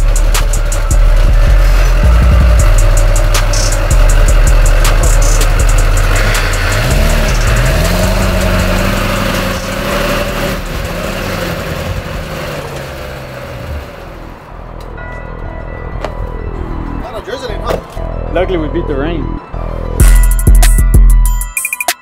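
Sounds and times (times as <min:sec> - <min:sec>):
truck engine revving: 0:00.0 - 0:14.8.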